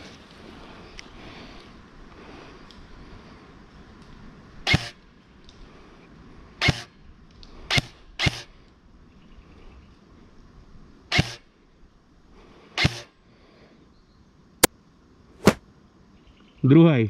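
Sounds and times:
airsoft rifle single shots: 0:11.1 - 0:11.4.

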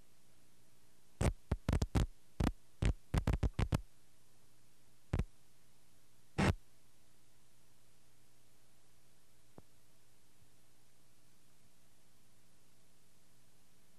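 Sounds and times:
faint steady hum: 0:00.0 - 0:13.9
sharp pops and thumps: 0:01.2 - 0:03.8.

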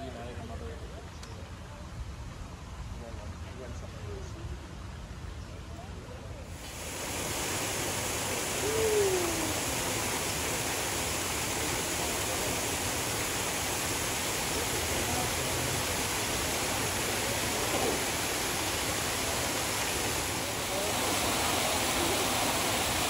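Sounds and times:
waterfall pouring into pool: 0:06.5 - 0:23.0.

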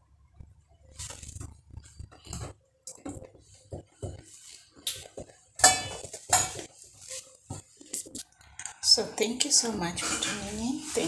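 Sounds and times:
utensils and dishes clinking: 0:05.6 - 0:06.8, 0:09.6 - 0:11.0.

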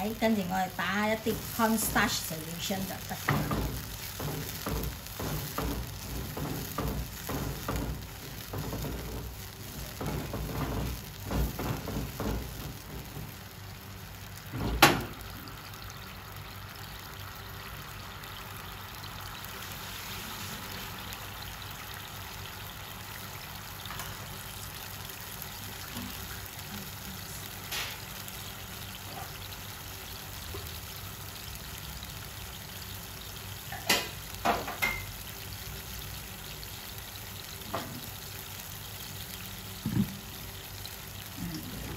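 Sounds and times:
sauce bubbling: 0:00.0 - 0:41.9
spatula stirring sauce in pan: 0:01.2 - 0:13.4.

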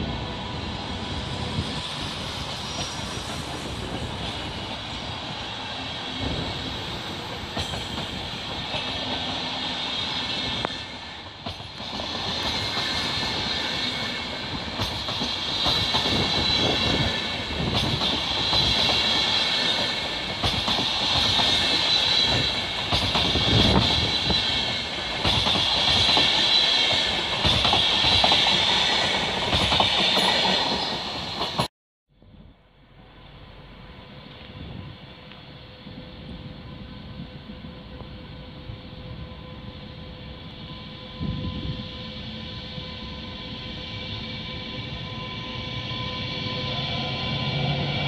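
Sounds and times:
train wheels clattering over rail joints: 0:06.2 - 0:09.5, 0:14.3 - 0:31.7
high-pitched whine: 0:32.5 - 0:48.0.

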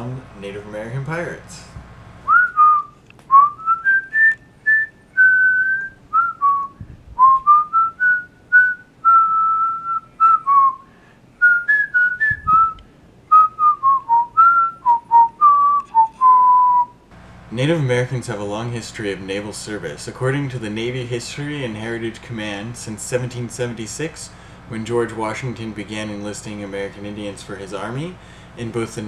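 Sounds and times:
person whistling a tune: 0:02.3 - 0:17.0.

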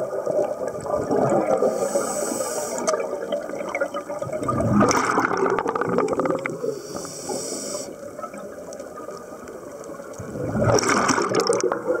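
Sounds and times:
exhaled bubbles gurgling: 0:00.0 - 0:12.0
regulator inhalation hiss: 0:01.6 - 0:03.0, 0:06.6 - 0:08.0.

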